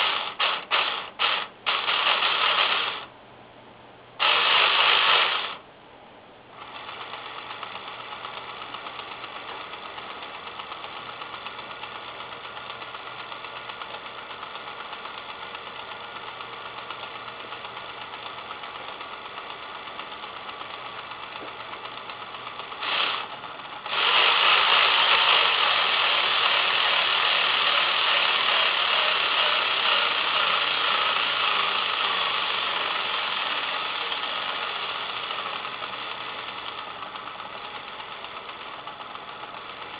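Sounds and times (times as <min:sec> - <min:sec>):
dot matrix printer rattling: 0:00.0 - 0:03.0.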